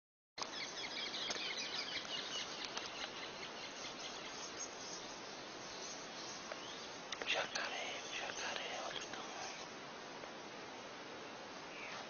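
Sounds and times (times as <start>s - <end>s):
birds chirping: 0.4s - 9.8s.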